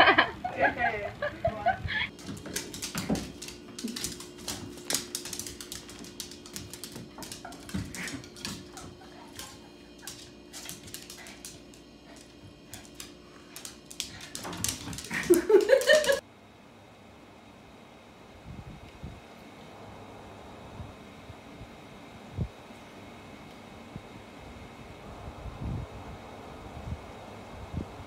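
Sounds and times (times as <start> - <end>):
claws tapping on tiled floor: 2.1 - 16.2.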